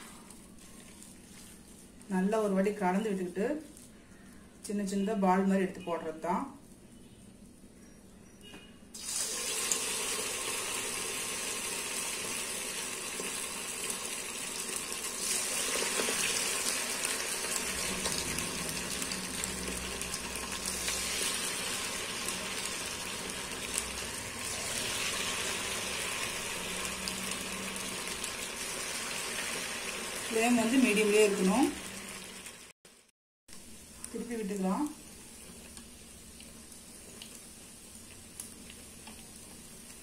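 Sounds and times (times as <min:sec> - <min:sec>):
batter sizzling in hot oil: 0:09.0 - 0:40.0.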